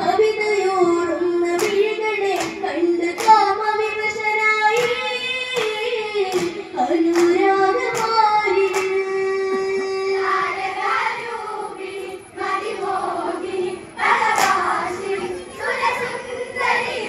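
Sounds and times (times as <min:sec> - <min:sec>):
women and girls singing in unison: 0:00.0 - 0:17.0
hand claps: 0:01.6 - 0:03.6, 0:04.7 - 0:09.0, 0:14.3 - 0:14.7.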